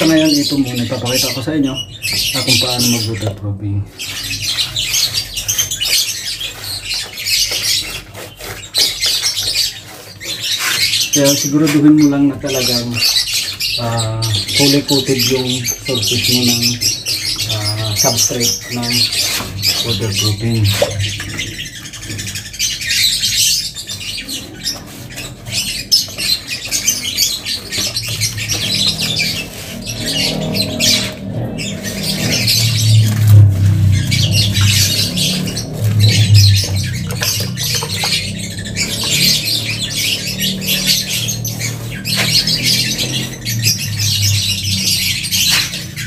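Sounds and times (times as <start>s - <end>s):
brush scrubbing concrete: 0.0s - 3.3s, 4.0s - 46.0s
low hum: 28.5s - 46.0s.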